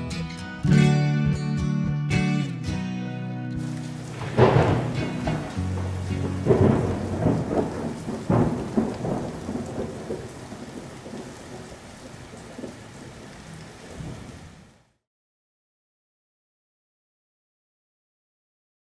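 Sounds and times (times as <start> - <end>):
rolling thunder: 3.6 - 13.3
steady rain: 3.6 - 15.0.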